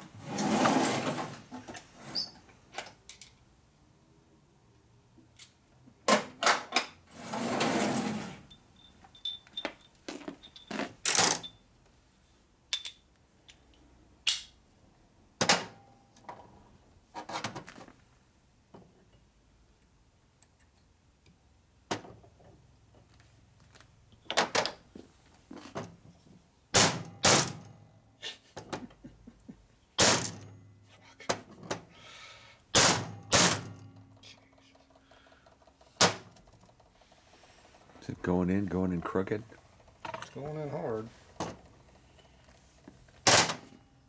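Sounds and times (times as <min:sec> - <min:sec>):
metal tools clinking: 0:07.8 - 0:11.6, 0:12.7 - 0:13.1.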